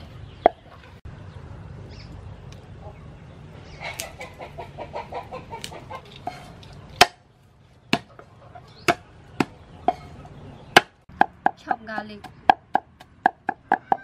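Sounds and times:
chicken clucking: 3.7s - 6.6s.

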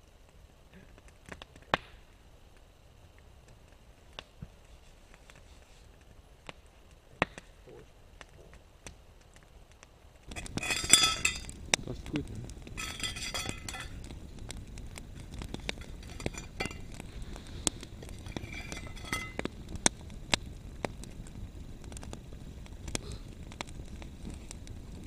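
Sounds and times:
campfire crackling and popping: 0.0s - 25.0s
metallic clinking: 10.3s - 11.5s, 12.8s - 14.0s, 15.7s - 17.0s, 18.0s - 19.4s.

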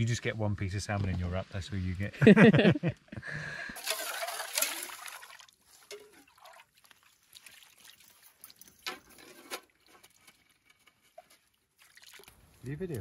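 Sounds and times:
water trickling and splashing: 3.8s - 13.0s.

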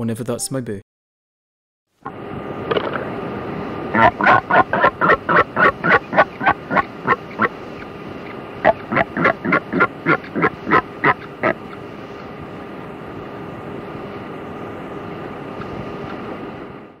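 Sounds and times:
bird short loud calls: 3.9s - 7.5s, 8.6s - 11.8s.

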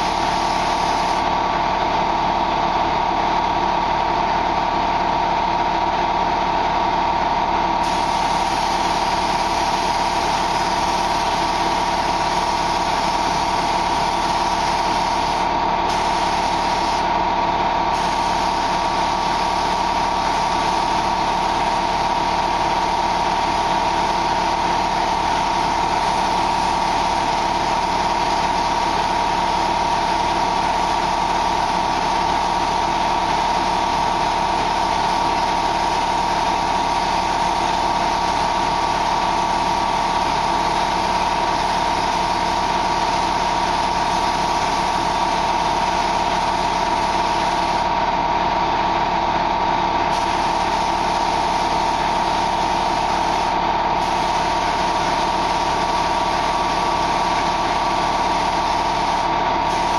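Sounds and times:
paint spray gun hissing: 0.0s - 1.3s, 7.8s - 17.1s, 17.9s - 29.6s, 38.3s - 47.8s, 50.1s - 59.9s
spray machine whine: 0.0s - 2.5s, 7.7s - 59.9s.

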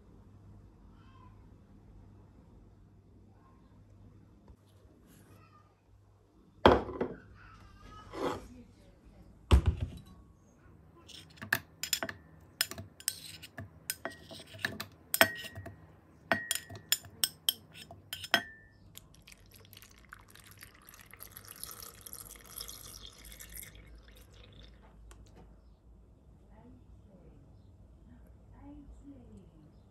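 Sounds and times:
glassware clinking: 11.1s - 18.8s
liquid pouring: 19.0s - 25.0s.

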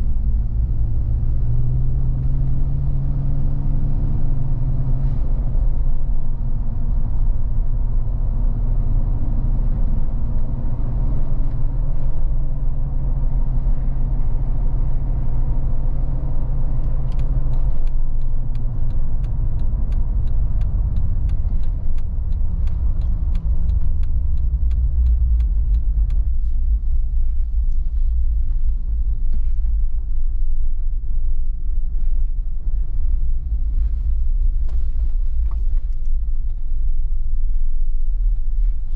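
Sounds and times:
car engine and tyres droning: 0.0s - 38.9s
light ticks: 16.7s - 29.7s.

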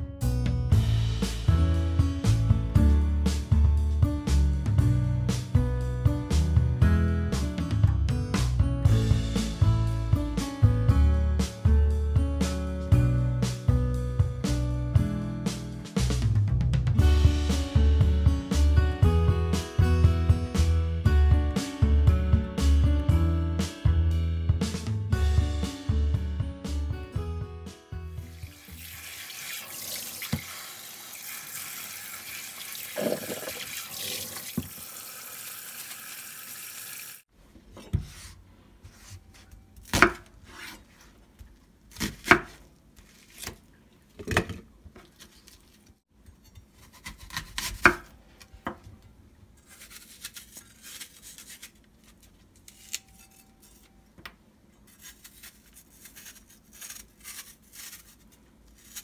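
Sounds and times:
tap water running into a bowl: 28.3s - 37.2s
knife chopping on a cutting board: 37.8s - 40.9s, 41.9s - 42.6s, 43.2s - 43.6s, 46.4s - 48.8s
apple peeling clicks and scrapes: 46.5s - 48.1s, 49.6s - 53.9s, 54.8s - 59.0s.

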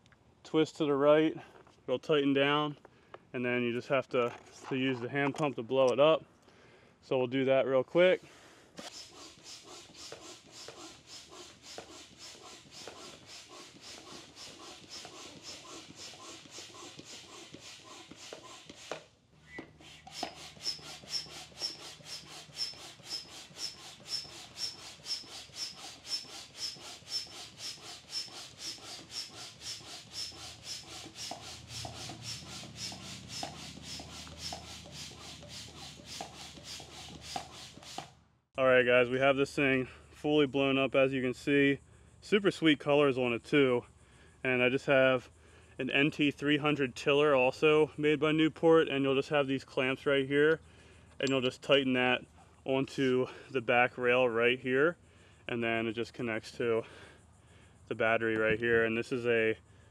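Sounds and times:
hand pump strokes: 8.8s - 38.2s.

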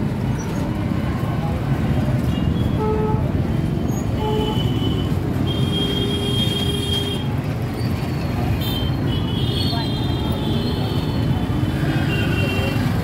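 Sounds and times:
street traffic rumble: 0.0s - 13.0s
vehicle horns honking: 4.2s - 7.3s.

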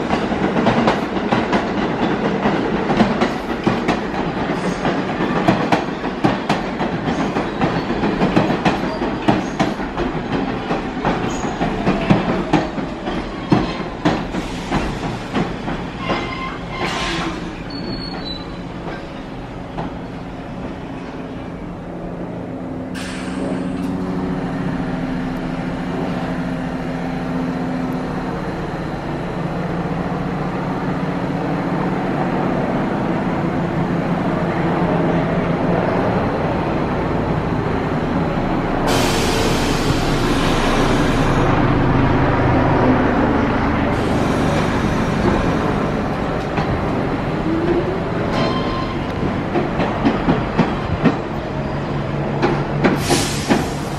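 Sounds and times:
train wheels clicking over rails: 0.0s - 20.9s, 43.8s - 53.9s
train mechanical hum: 8.1s - 53.9s
air brake hiss: 14.3s - 15.4s, 22.9s - 23.9s, 38.8s - 41.4s, 43.9s - 45.3s, 53.0s - 53.9s.

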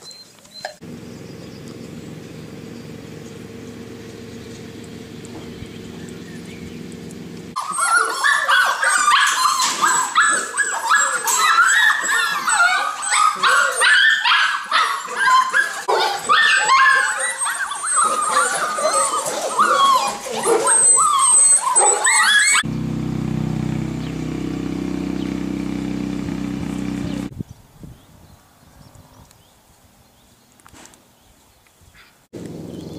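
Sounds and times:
puppies yipping and barking: 0.1s - 22.7s
steady low hum: 0.8s - 7.6s, 22.6s - 27.3s.

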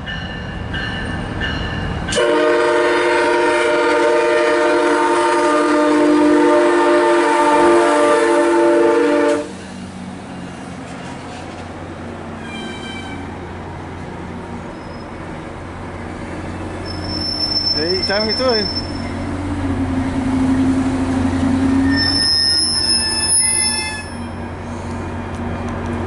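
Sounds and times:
passing train rumble: 0.0s - 26.0s
train air horn: 2.2s - 9.6s, 21.7s - 24.4s.

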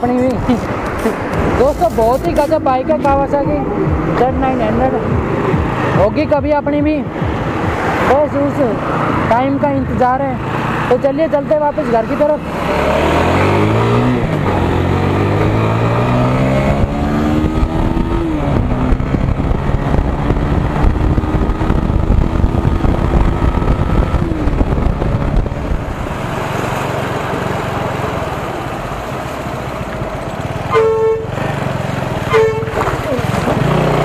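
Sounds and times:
motorcycle engine accelerating: 10.1s - 34.0s
wind noise: 12.4s - 26.8s
short horn honk: 30.7s - 31.3s, 32.3s - 32.8s.

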